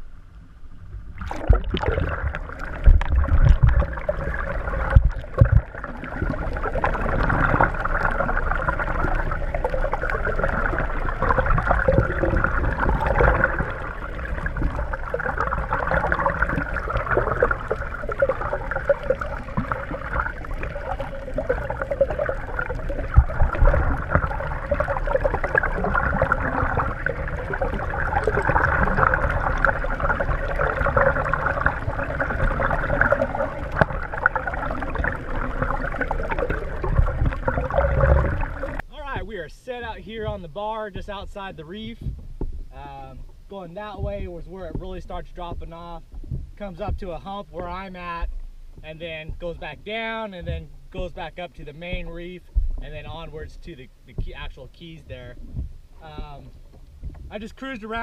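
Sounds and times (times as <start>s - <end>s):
underwater gurgling rush: 0.8s - 58.0s
heavy low thumps: 36.8s - 57.5s.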